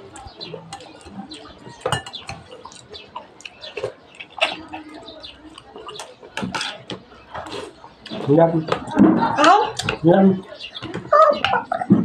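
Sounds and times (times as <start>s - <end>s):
chewing: 0.0s - 9.0s.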